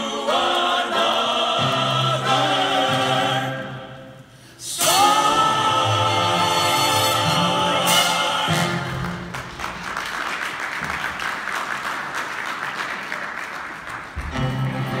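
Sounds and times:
music: 0:00.0 - 0:10.0, 0:14.2 - 0:15.0
audience applauding: 0:08.8 - 0:15.0.

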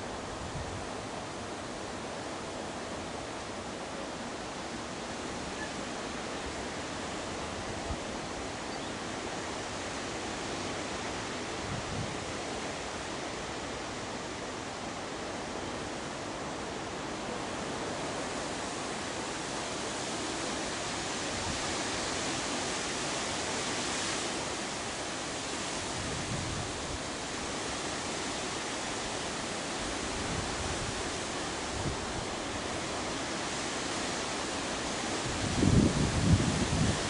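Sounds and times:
wind hiss: 0:00.0 - 0:37.0
wind gusts buffeting microphone: 0:25.8 - 0:27.2, 0:35.1 - 0:37.0.

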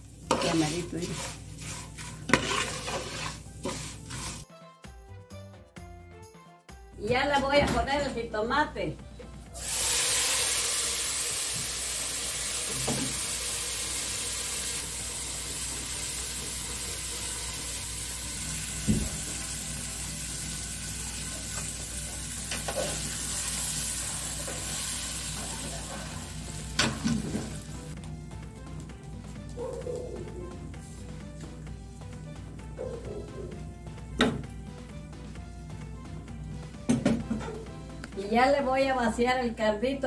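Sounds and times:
tomato sizzling in hot oil: 0:00.0 - 0:04.4, 0:09.5 - 0:28.0.

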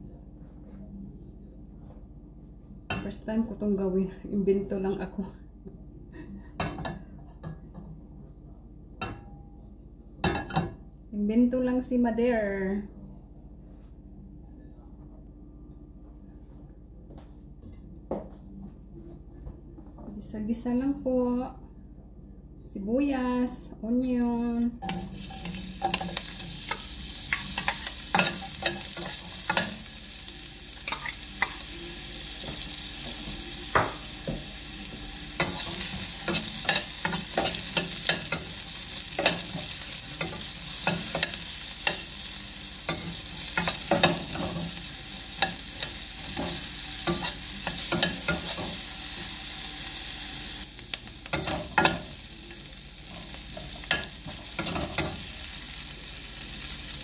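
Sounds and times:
metal spoon scraping a pan: 0:24.8 - 0:29.9
onions sizzling in oil: 0:24.8 - 0:57.0.

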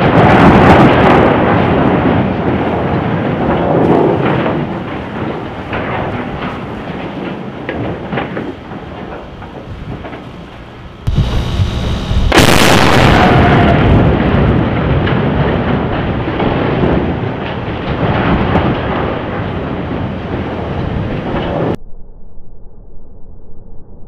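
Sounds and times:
explosive blast crack: 0:11.0 - 0:21.8
heavy explosion boom: 0:11.0 - 0:22.1.

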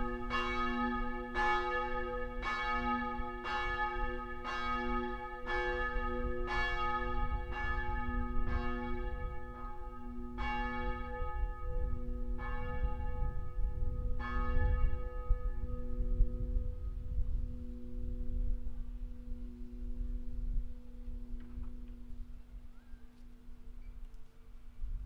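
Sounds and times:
church bell ringing: 0:00.0 - 0:22.5
low rumble: 0:11.2 - 0:22.5.

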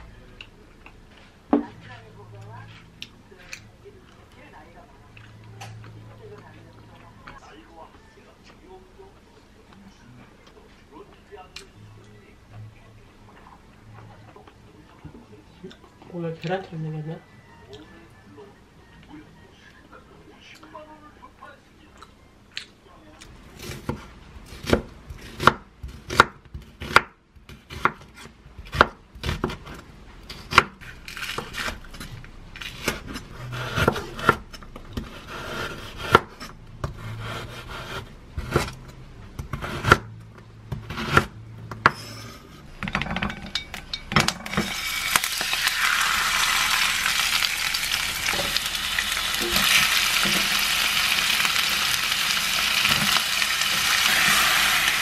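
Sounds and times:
knife chopping on wooden board: 0:23.6 - 0:31.8, 0:32.8 - 0:34.4, 0:35.0 - 0:38.8, 0:39.4 - 0:40.1
meat sizzling in a pan: 0:44.7 - 0:55.0.

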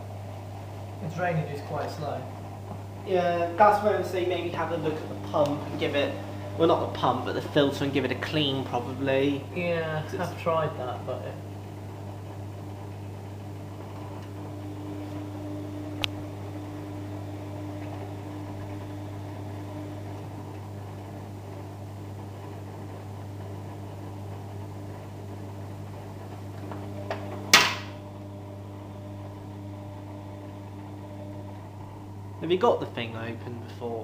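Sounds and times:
drain pump humming: 0:00.0 - 0:34.0
drum turning wet laundry: 0:00.0 - 0:34.0
sharp knock: 0:27.5 - 0:27.9.

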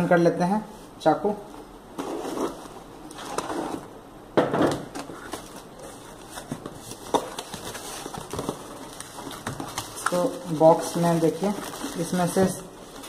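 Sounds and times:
cardboard rustling and clicks: 0:04.7 - 0:13.0.

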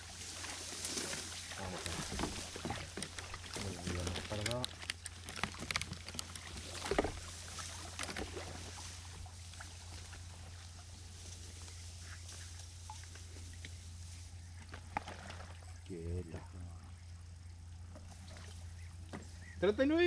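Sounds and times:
faint water sounds: 0:00.0 - 0:20.0
steady low hum: 0:00.0 - 0:20.0
small clicks and knocks: 0:01.8 - 0:07.2.

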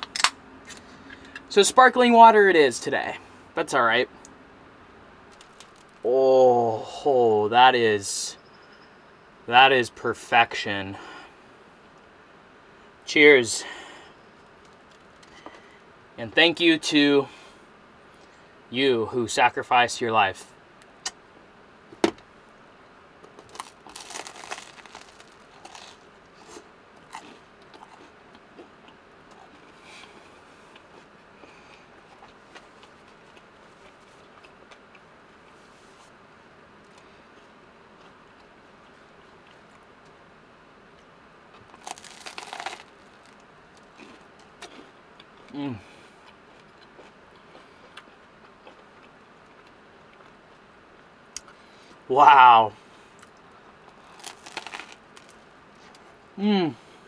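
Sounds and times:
toasted bread crunching: 0:05.3 - 0:06.0, 0:23.3 - 0:28.7, 0:41.5 - 0:45.6, 0:53.2 - 0:56.0
quiet chewing: 0:23.3 - 0:36.2, 0:36.8 - 0:40.2, 0:40.9 - 0:52.0.

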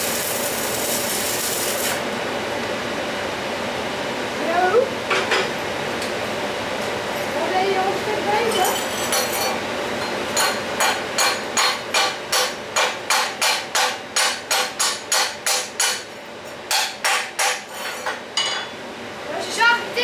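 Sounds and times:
hammer striking steel: 0:10.4 - 0:16.1, 0:16.7 - 0:17.6.

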